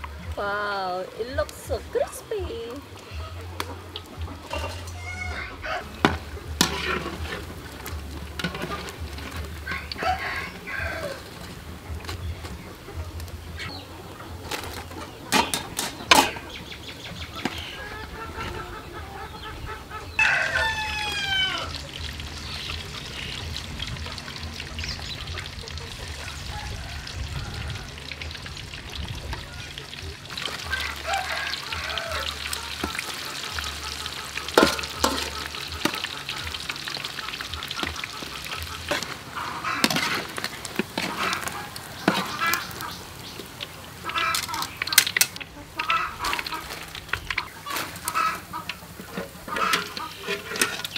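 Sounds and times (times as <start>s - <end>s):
chickens clucking: 0.0s - 50.9s
oil sizzling: 0.0s - 50.9s
rooster crowing: 4.9s - 6.0s, 9.7s - 11.3s, 20.2s - 21.8s, 26.0s - 28.2s, 30.7s - 32.6s.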